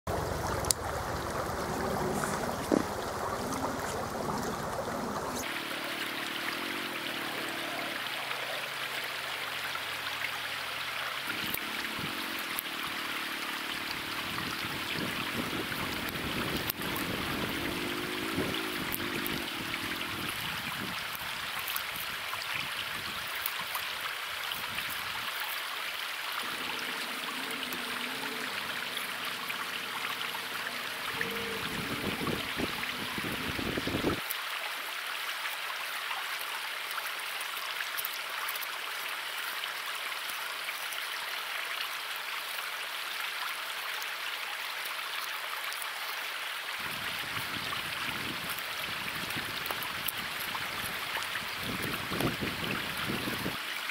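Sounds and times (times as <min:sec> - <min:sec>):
river rushing over rocks: 0:00.2 - 0:34.7.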